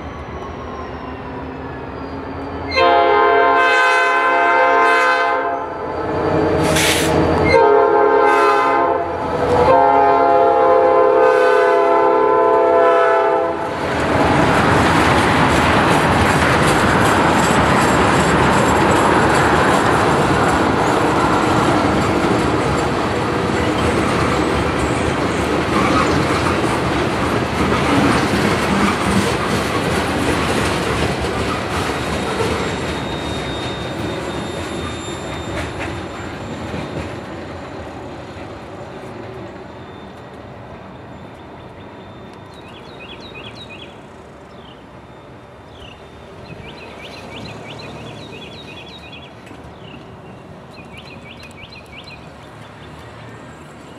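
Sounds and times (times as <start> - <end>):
high squeal: 0.0 - 2.8, 5.5 - 7.6, 32.0 - 37.0, 39.5 - 43.8
freight train cars rolling past: 0.0 - 53.9
birds chirping: 41.2 - 53.9.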